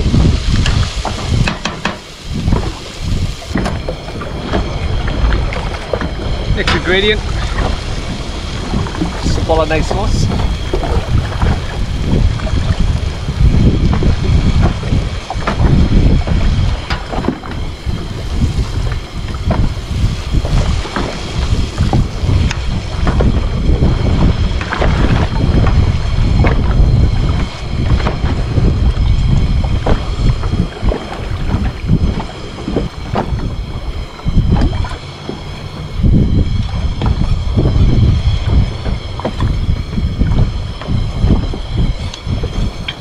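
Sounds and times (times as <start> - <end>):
wind buffeting microphone: 0.0 - 43.0
sharp clicks and knocks: 0.6 - 2.7.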